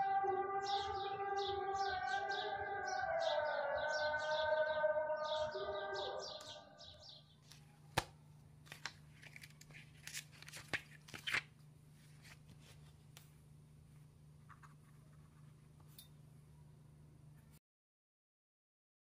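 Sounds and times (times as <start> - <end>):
siren-like tones and chirps: 0.0 - 7.0
faint low hum: 0.0 - 17.6
notebook pages rustling: 7.5 - 15.7.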